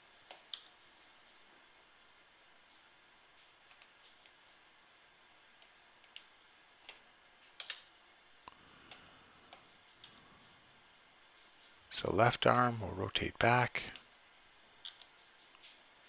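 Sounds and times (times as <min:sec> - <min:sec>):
room hiss: 0:00.0 - 0:16.0
mouse and keyboard clicks: 0:07.6 - 0:07.9.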